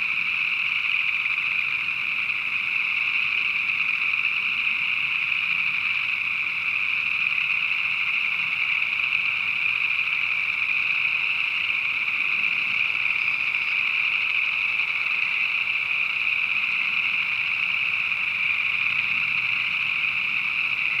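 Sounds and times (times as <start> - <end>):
chorus of frogs calling: 0.0 - 21.0.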